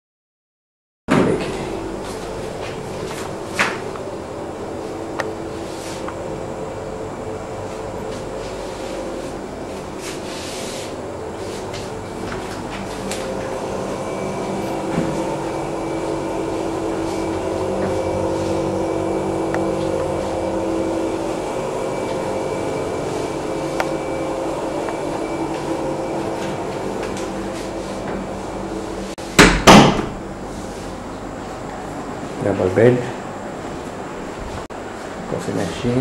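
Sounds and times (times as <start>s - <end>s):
droning tone: 1.1s - 29.3s
air-handling fan hum: 1.1s - 36.0s.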